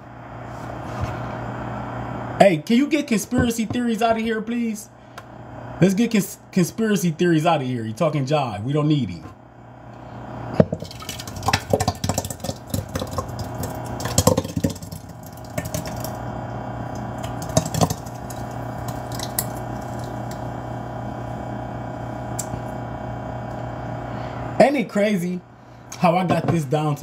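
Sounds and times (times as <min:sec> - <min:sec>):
steady background hum: 0:00.0 - 0:27.0
slushy liquid plopping and sloshing: 0:10.8 - 0:16.2, 0:16.9 - 0:20.5.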